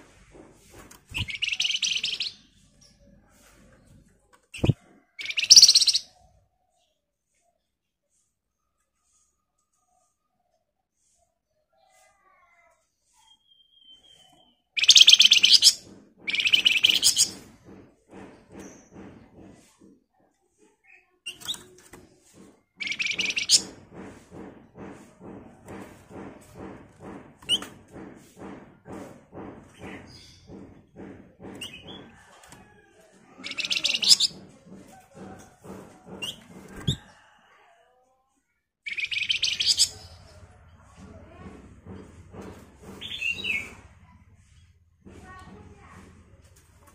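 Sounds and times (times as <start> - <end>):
bird rattling trills: 1.0 - 2.5, 4.5 - 6.1, 14.8 - 17.4, 22.8 - 23.8, 33.4 - 34.4, 38.9 - 40.2.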